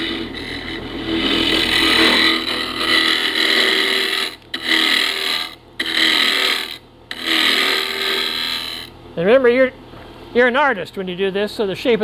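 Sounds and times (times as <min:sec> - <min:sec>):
lathe tool shearing wood: 0:00.0 - 0:08.9
lathe motor hum: 0:00.0 - 0:09.0.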